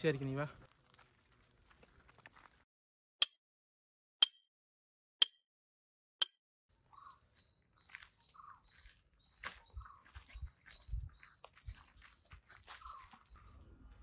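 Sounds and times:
faint outdoor sounds: 0.0 - 2.7, 6.7 - 14.0.

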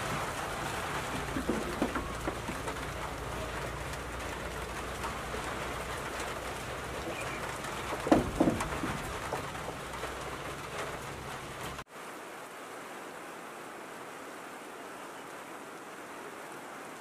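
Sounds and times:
corn cobs knocking into bucket: 1.0 - 3.6, 7.8 - 9.7.

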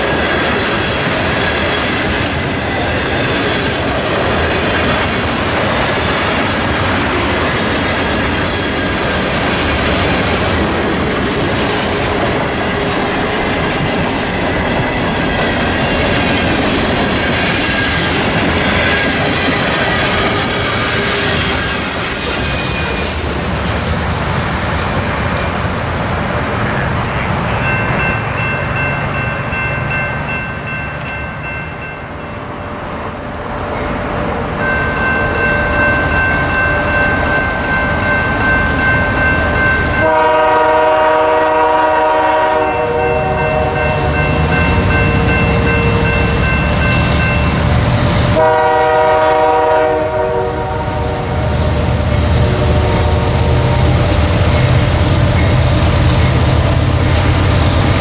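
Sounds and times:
crossing warning bell ringing: 0.0 - 23.1, 26.6 - 50.8, 52.0 - 57.4
train wheels rumbling on rails: 0.0 - 58.0
train air horn blasts: 40.0 - 44.1, 48.4 - 51.4, 52.5 - 53.6.

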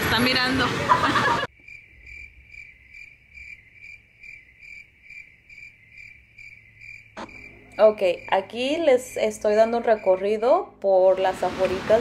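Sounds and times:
cricket chirping: 1.5 - 10.4.

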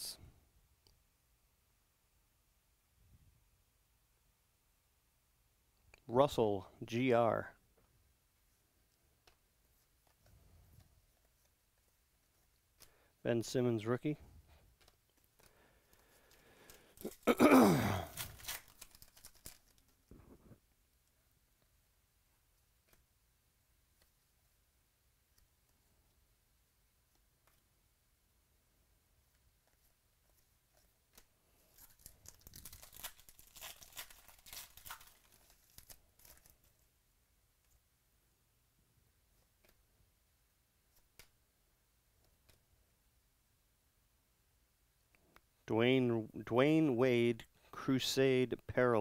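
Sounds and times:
foil wrapper tearing and crinkling: 16.7 - 20.0, 31.6 - 36.8
cards clicking: 18.1 - 20.0.

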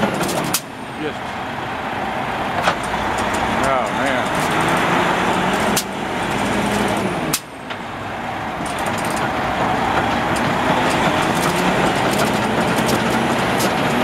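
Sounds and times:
truck diesel engine under load: 0.0 - 14.0.

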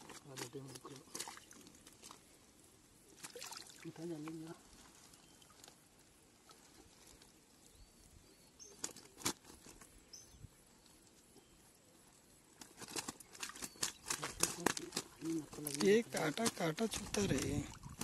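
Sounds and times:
faint bird chirps: 6.4 - 12.5
rustling and clicking handling: 12.6 - 18.0.

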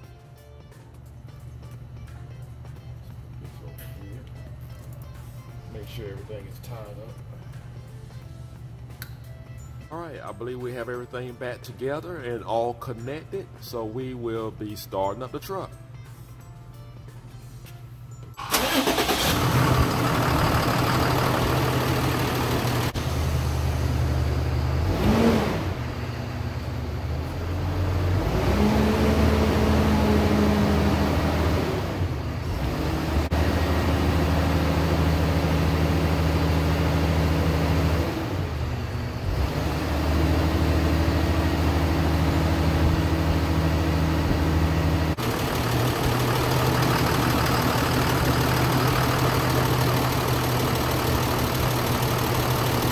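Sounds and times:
diesel engine idling: 18.4 - 28.1, 40.2 - 52.9.

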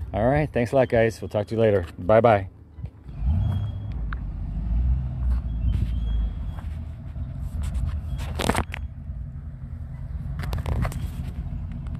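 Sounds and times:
low motor rumble: 2.6 - 11.9
phone handling clicks and rustle: 7.6 - 8.9.

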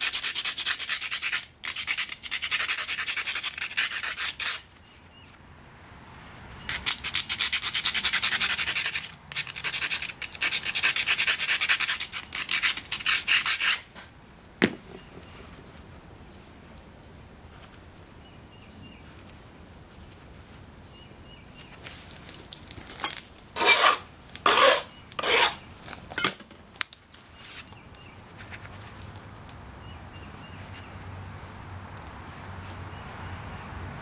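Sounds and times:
stone scraping stone: 0.0 - 4.7, 6.7 - 13.9, 23.0 - 25.6.

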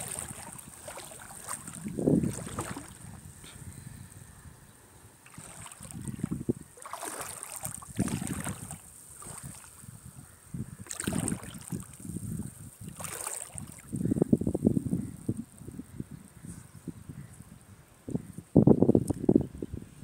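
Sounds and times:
seawater washing over sand: 0.0 - 3.6, 5.2 - 14.0
wind buffeting microphone: 0.0 - 20.0.

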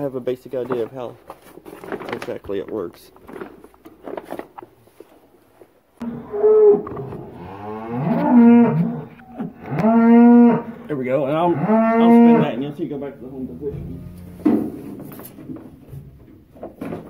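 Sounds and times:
faint rustling and handling: 0.0 - 6.0
cow mooing: 6.0 - 10.7, 11.3 - 12.6, 13.4 - 14.6.

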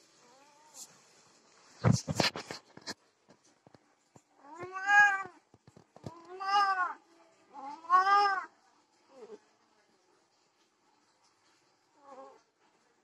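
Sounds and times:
cats yowling: 4.4 - 5.4, 6.1 - 8.5.

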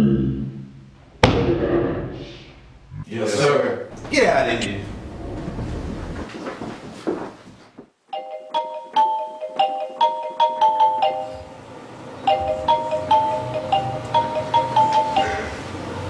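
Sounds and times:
mobile phone marimba ringtone: 8.1 - 11.6, 12.3 - 15.7.

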